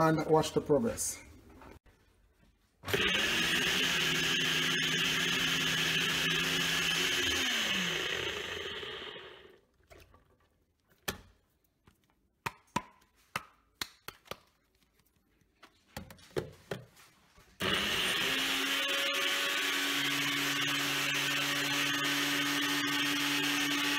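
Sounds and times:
blender motor: 2.9s - 9.6s, 17.6s - 23.9s.

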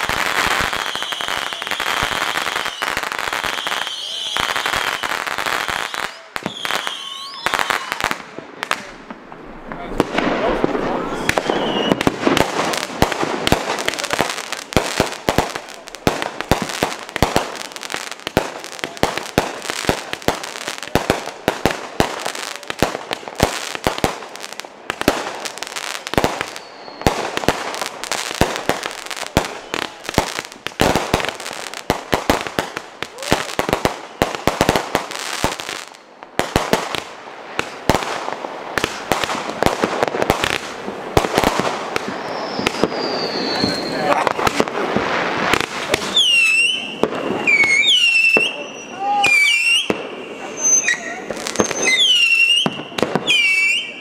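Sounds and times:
firework whistles: 0.0s - 8.2s, 10.8s - 12.5s, 25.7s - 28.9s, 42.0s - 54.0s
fireworks popping and crackling: 0.0s - 54.0s.

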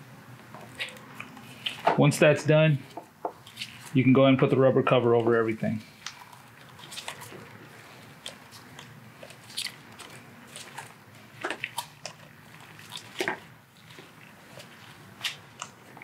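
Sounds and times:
wires crinkling and clicking: 6.0s - 16.0s.

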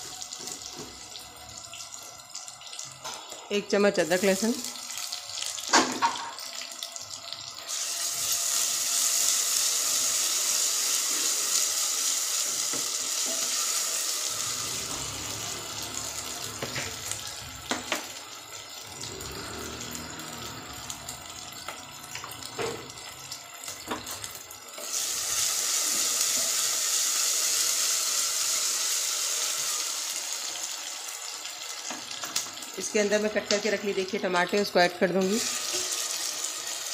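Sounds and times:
onions sizzling in hot oil: 0.0s - 36.9s.

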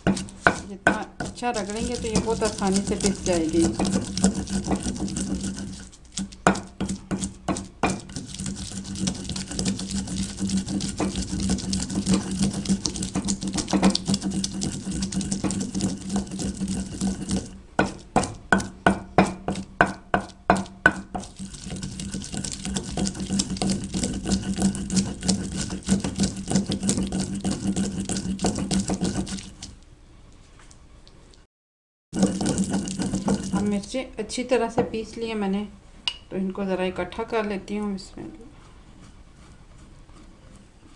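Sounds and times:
pestle grinding in stone mortar: 0.0s - 29.8s, 32.1s - 34.1s.

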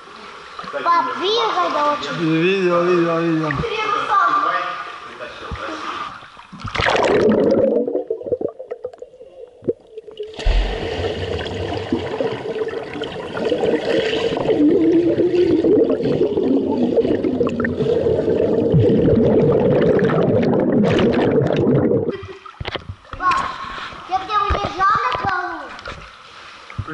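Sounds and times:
water splash: 5.7s - 8.9s, 10.2s - 22.9s
muffled underwater rushing and bubbling: 6.5s - 24.9s.

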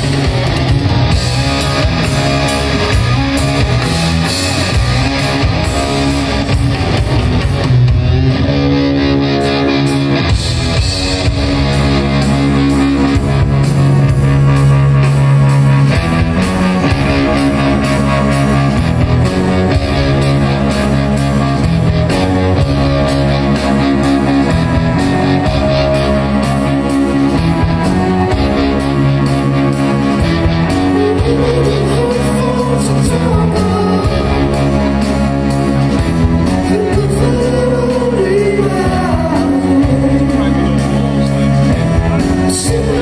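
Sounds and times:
bass and drums: 0.0s - 43.0s
electric guitar riff: 0.0s - 43.0s
person singing: 30.6s - 35.1s, 36.4s - 43.0s.

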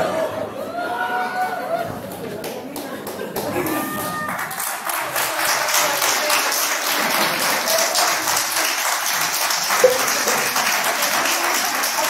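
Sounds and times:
audience applauding: 3.9s - 12.0s.

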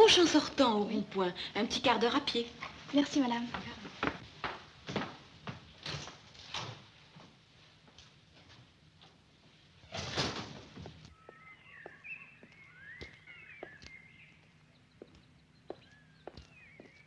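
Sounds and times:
heeled footsteps on paving: 10.8s - 17.0s
bird chirping: 11.1s - 17.0s.

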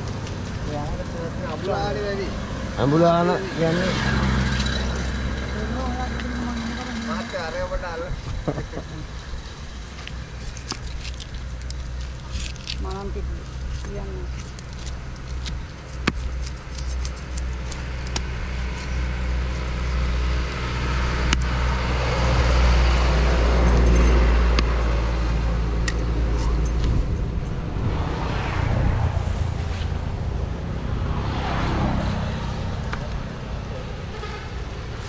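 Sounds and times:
vehicle passing: 0.0s - 10.5s, 17.7s - 35.0s
road traffic: 0.0s - 35.0s.

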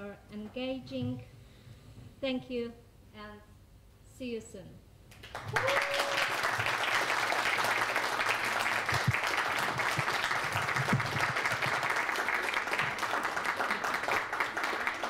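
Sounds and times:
crowd applauding: 5.1s - 15.0s.

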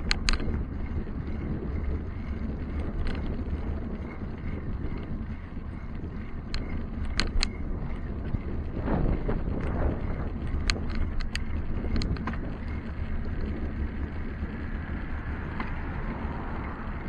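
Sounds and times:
sharp clicks: 0.0s - 0.6s, 6.5s - 7.6s, 9.6s - 13.0s
wind rumbling on microphone: 0.0s - 17.0s.

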